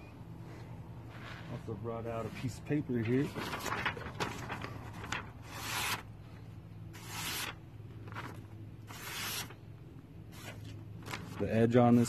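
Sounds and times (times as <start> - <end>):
knife slicing paper: 7.0 - 7.6, 8.2 - 9.6.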